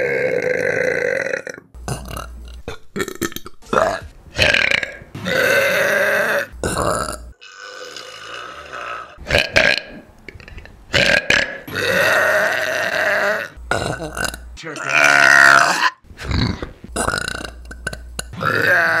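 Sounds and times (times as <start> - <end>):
women burping: 11.0 - 19.0.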